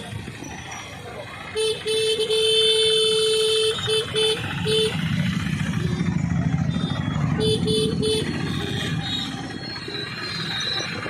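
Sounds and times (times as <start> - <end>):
motorcycle and scooter engines: 0.0 - 11.0
vehicle horn beeps: 1.6 - 5.2, 6.7 - 9.4.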